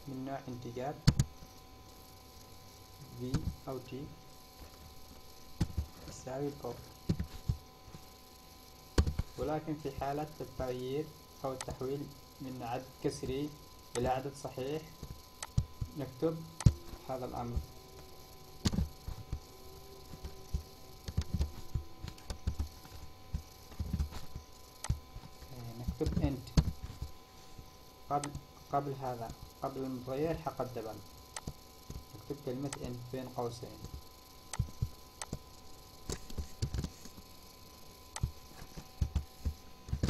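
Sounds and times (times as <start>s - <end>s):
steady electrical hum: 0.0s - 40.0s
keyboard and mouse clicks: 31.4s - 31.6s.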